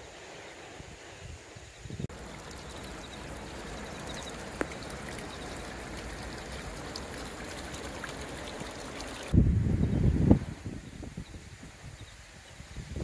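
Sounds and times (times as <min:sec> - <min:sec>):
stream water rushing: 0:02.1 - 0:09.4.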